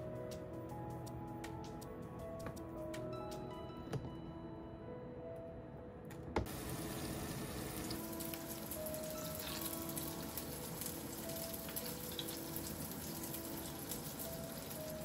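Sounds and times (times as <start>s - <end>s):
light background music: 0.0s - 15.0s
patties sizzling in a frying pan: 6.5s - 15.0s.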